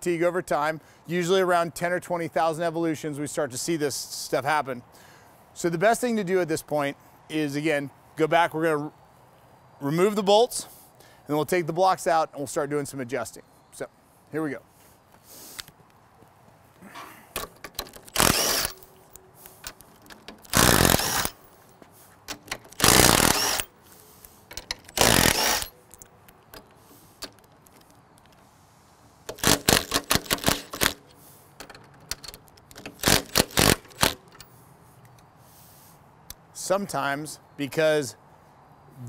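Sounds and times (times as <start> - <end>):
impact driver bursts: 17.4 - 18.8, 20.4 - 21.4, 22.3 - 23.7, 24.8 - 25.7, 29.3 - 31.1, 32.9 - 34.3.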